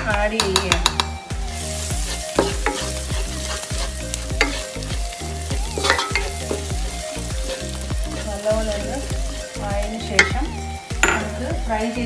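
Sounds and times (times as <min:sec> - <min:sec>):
onions sizzling in a frying pan: 0:00.0 - 0:12.0
spatula scraping a pan: 0:01.6 - 0:10.6.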